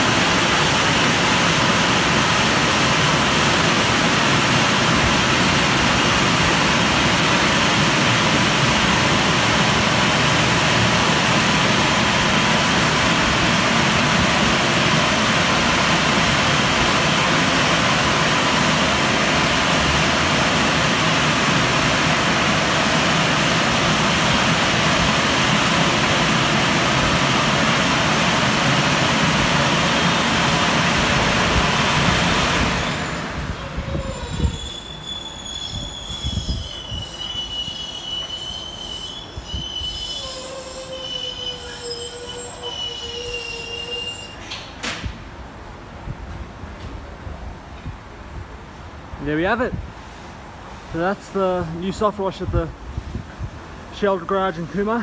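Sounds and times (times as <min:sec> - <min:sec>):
car wash gantry rushing: 0:00.0 - 0:33.5
faint high squealing tones: 0:32.8 - 0:44.6.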